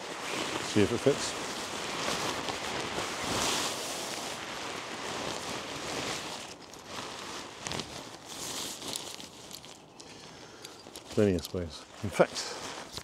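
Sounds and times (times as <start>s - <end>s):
nylon fabric rustling: 0.0s - 9.9s.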